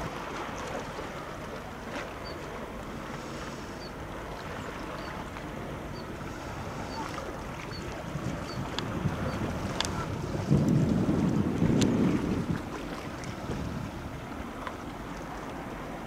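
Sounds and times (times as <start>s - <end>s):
water noise: 0.0s - 16.0s
wind buffeting microphone: 5.6s - 15.2s.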